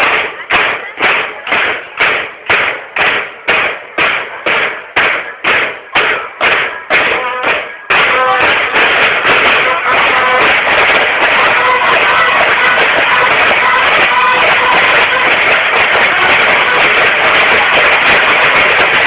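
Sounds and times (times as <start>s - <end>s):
snare drums marching cadence: 0.0s - 19.0s
bugle notes: 5.4s - 19.0s.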